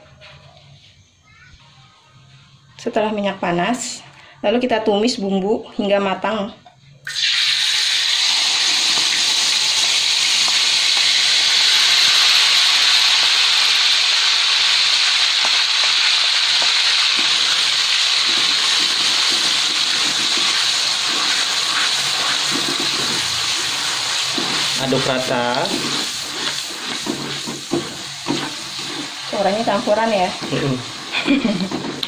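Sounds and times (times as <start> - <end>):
spice paste sizzling in oil: 7.1 - 32.0.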